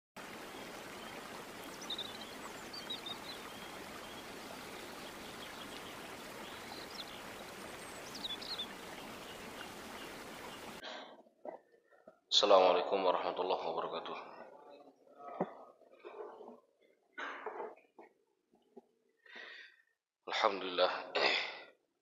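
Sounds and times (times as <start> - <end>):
stream rushing over rocks: 0.2 - 10.8
bird chirps: 0.6 - 10.8.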